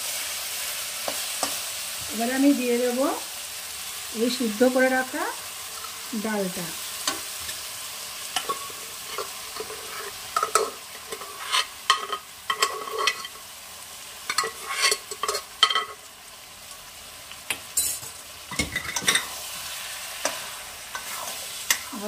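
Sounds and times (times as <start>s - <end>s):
faint sizzle from pan: 0.0s - 22.0s
utensils scraping on metal: 8.4s - 13.4s, 14.3s - 15.9s.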